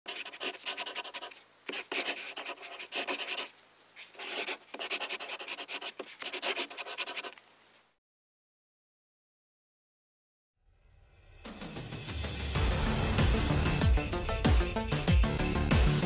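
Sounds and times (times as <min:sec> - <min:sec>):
pen scratching across surface: 0:00.1 - 0:07.5.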